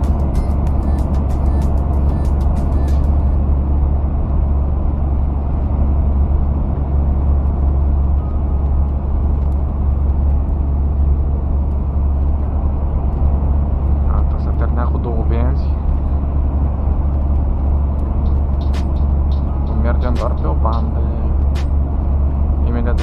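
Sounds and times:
road noise: 0.0 - 23.0
truck engine drone: 0.0 - 23.0.

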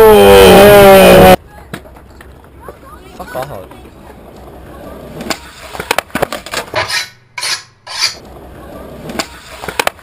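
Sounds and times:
skateboard clacking on concrete: 5.0 - 6.9, 9.0 - 10.0.

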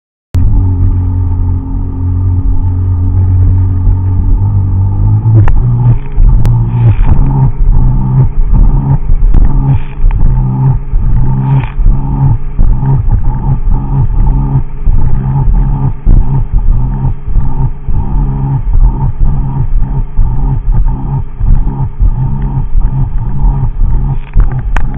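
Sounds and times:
personal watercraft engine revving: 0.4 - 20.0.

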